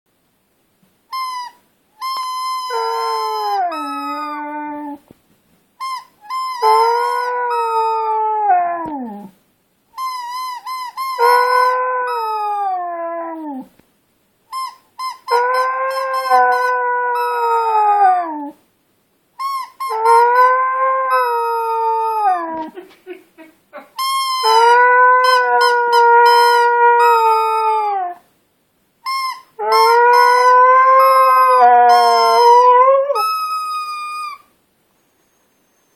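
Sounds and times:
squeaky toy ball squeaks: 1.1 - 4.9, 5.8 - 8.1, 10.0 - 12.8, 14.5 - 18.1, 19.4 - 22.7, 24.0 - 27.9, 29.0 - 34.5
dog howling: 6.6 - 9.3, 19.9 - 22.8, 24.4 - 28.2, 29.6 - 33.3.

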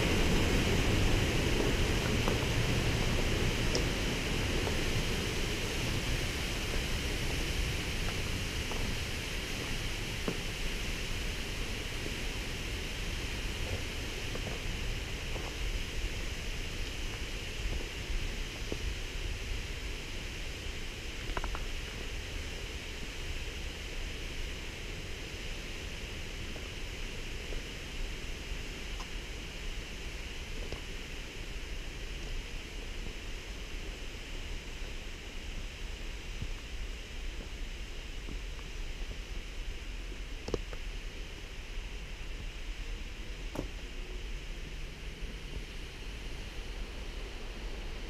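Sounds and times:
faint ticks: 3.7 - 3.9, 21.2 - 21.9, 28.9 - 29.2.

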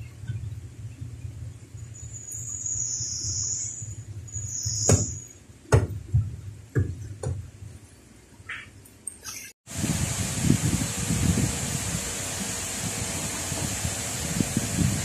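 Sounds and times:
steady low hum: 0.0 - 8.9, 9.7 - 15.0
sharp knocks: 4.8 - 7.4.

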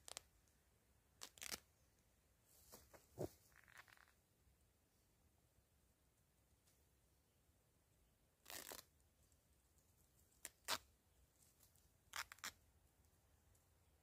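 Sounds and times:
fabric ripping: 1.2 - 1.6, 8.4 - 8.8, 10.4 - 10.9.

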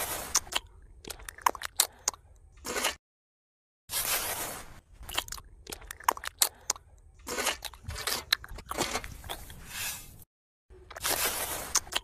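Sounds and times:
trowel scraping wet mortar: 3.9 - 4.8, 11.0 - 12.0.

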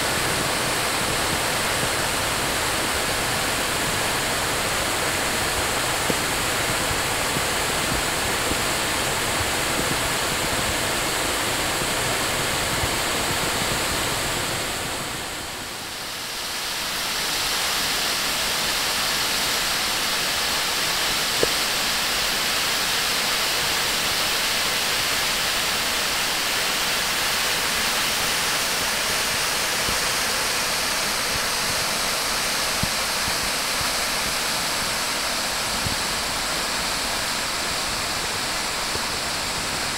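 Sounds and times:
waterfall roaring over rock: 0.0 - 39.9.

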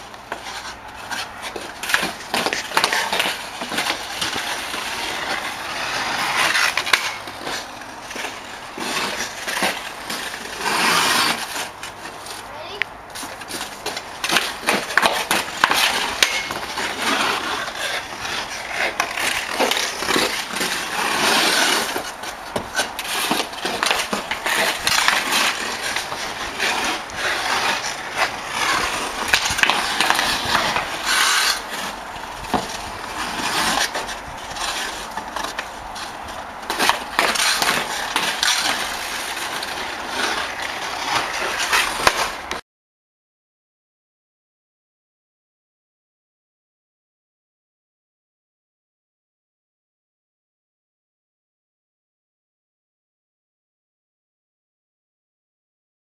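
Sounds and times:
hockey stick striking puck: 0.0 - 42.6
ice skates scraping on ice: 0.0 - 42.6
puck hitting the boards: 0.1 - 42.6.

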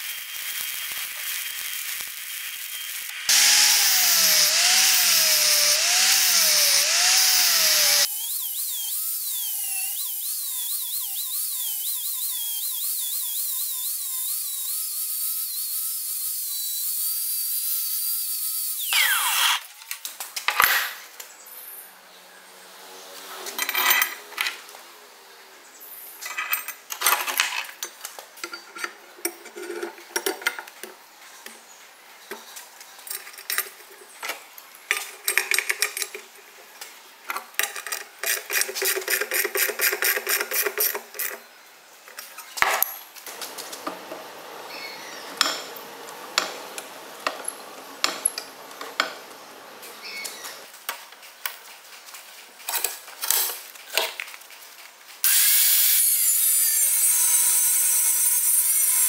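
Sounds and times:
angle grinder on steel: 0.0 - 19.6, 38.2 - 41.4, 55.2 - 59.0.

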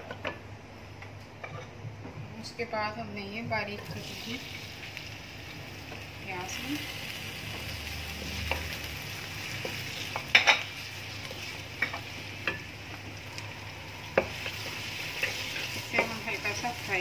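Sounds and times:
onions sizzling in hot oil: 3.5 - 17.0.

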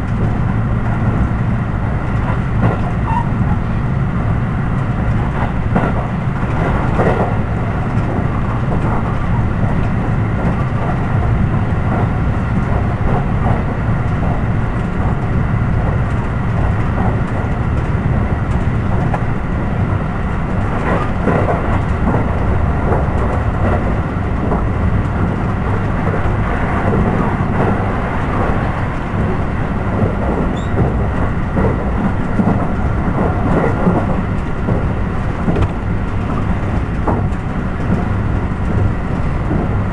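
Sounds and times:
electric train rumbling and rattling: 0.0 - 39.9
knocks from the track: 30.0 - 38.1.

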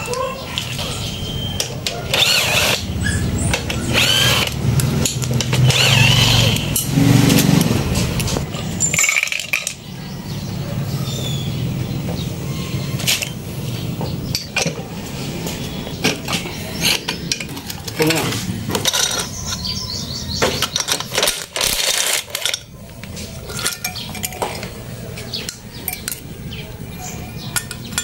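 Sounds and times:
loose metal parts chinking: 1.6 - 10.0, 14.2 - 28.0
metal hand tools clinking: 8.5 - 9.9, 16.0 - 26.4, 27.0 - 28.0.

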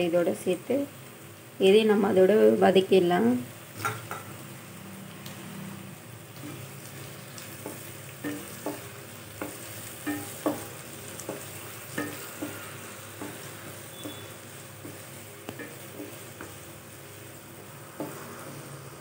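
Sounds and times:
vegetables sizzling in a pan: 0.0 - 19.0
wooden spatula scraping a pan: 6.4 - 18.9.

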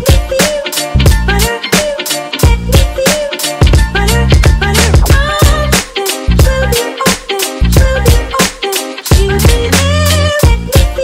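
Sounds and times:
drums: 0.0 - 11.0
deep bass notes: 3.8 - 5.8.

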